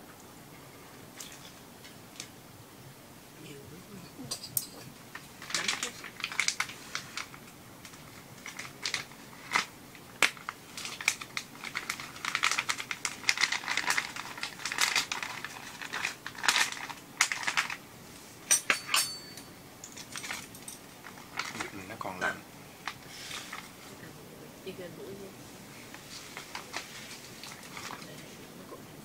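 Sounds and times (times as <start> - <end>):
plastic bag crinkling: 5.1 - 17.8, 19.9 - 23.9, 25.7 - 28.4.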